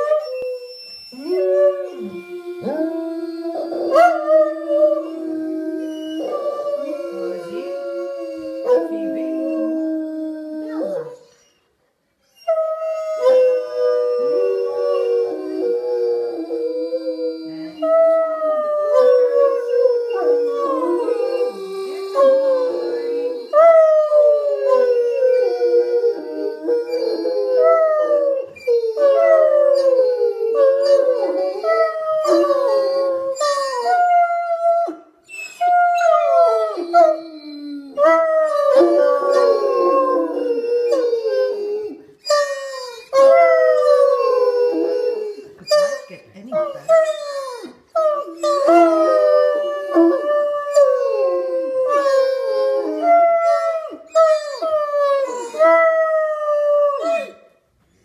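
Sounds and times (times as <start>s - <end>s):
dogs howling in chorus: 1.2s - 11.2s, 12.8s - 35.0s, 35.6s - 42.0s, 43.1s - 45.5s, 47.6s - 57.4s.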